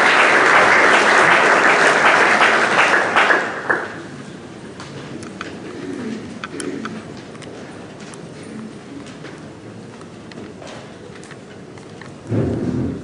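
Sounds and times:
audience applause: 0.0 - 4.1.

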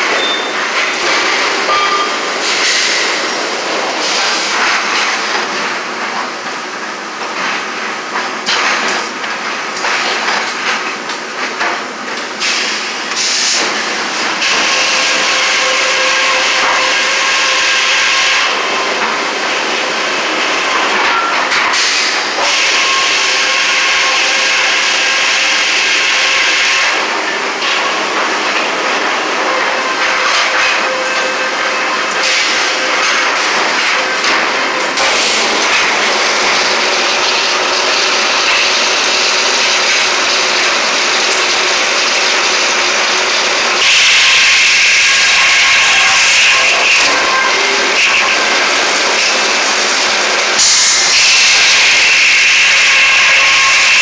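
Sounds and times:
circular saw cutting log: 14.4 - 19.2, 21.7 - 54.0.

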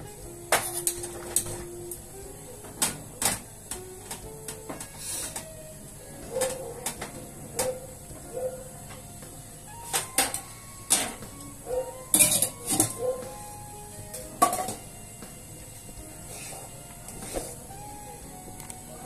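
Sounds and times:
metal pots clinking: 12.1 - 13.1.

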